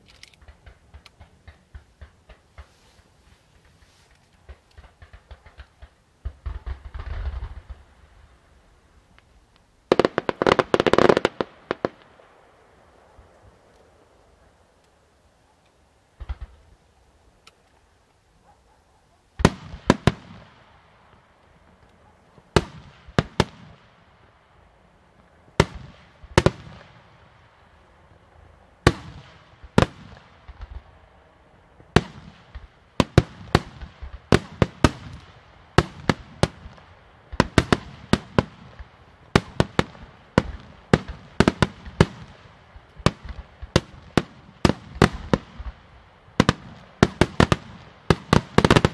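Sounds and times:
firework shells bursting: 0.0s - 7.9s.

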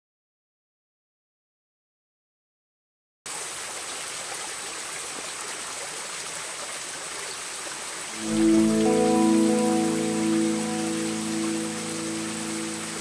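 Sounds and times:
stream rushing: 3.3s - 13.0s
music with sustained notes: 8.1s - 13.0s
thin high steady tone: 8.2s - 13.0s.

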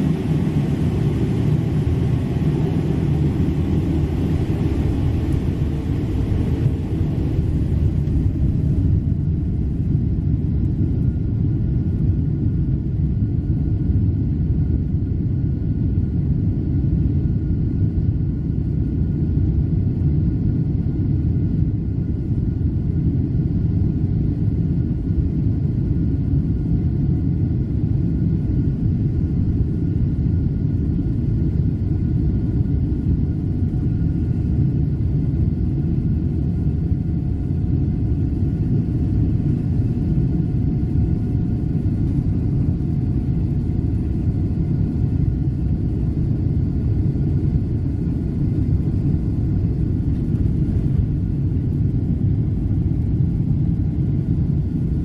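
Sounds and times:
airliner cabin low rumble: 0.0s - 55.0s
faint jet engine whine: 0.0s - 55.0s.

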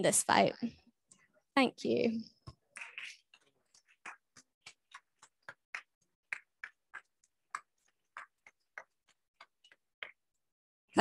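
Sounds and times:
sparse hand clapping: 3.7s - 10.3s.

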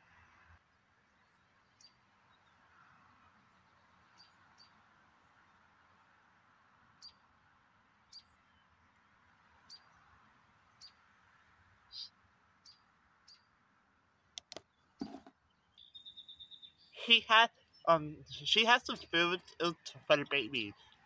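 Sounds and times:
high bird chirps: 11.9s - 12.1s, 15.5s - 18.5s
sharp clicks: 14.4s - 14.7s.

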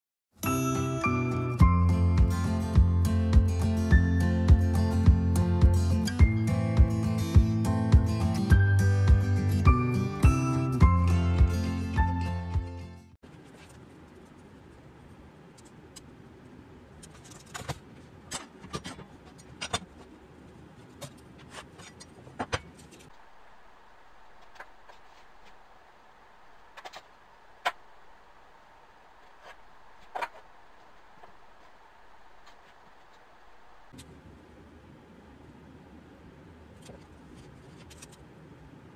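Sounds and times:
faint background hum: 13.2s - 38.9s
tools and boards clicking: 17.0s - 20.0s.

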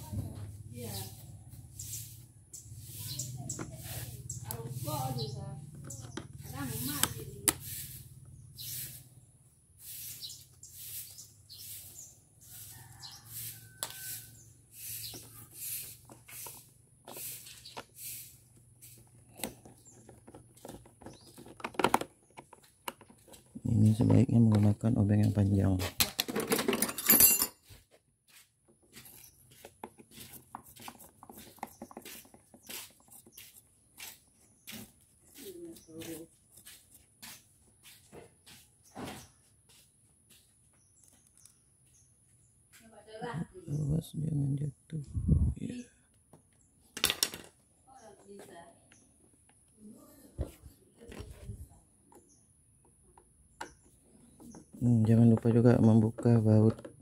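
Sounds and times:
screwdriver scraping turns: 13.0s - 24.6s.

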